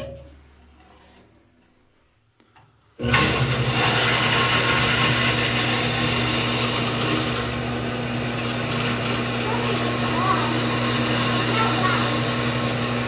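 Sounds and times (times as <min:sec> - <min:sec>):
water pump motor humming: 0:03.0 - 0:13.0.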